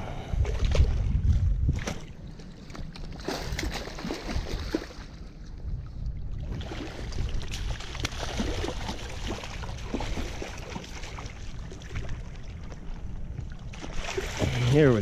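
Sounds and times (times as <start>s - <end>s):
fish splashing in water: 1.8s - 5.2s, 6.4s - 12.9s, 13.7s - 14.9s.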